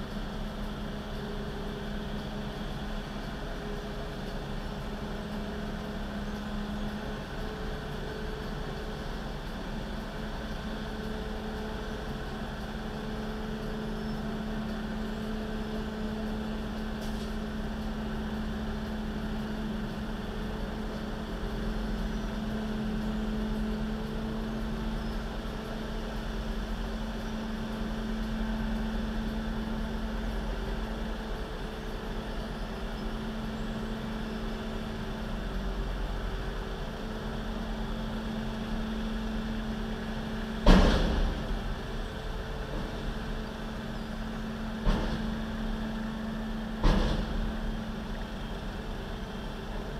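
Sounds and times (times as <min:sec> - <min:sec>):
truck engine idling: 0:00.0 - 0:49.9
loud bang with ringing: 0:40.6 - 0:41.7.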